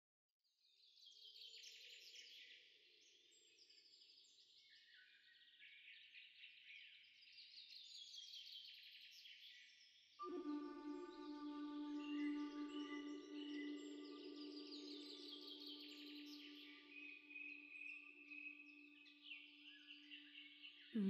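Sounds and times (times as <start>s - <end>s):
soft ambient music: 10.2s - 20.9s
birds twittering and chirping: 10.2s - 21.0s.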